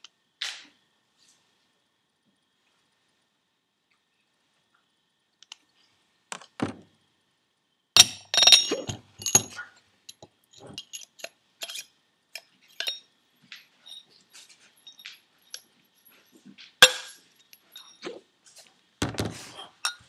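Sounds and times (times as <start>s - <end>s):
metal clinks and knocks: 8.0s - 18.2s.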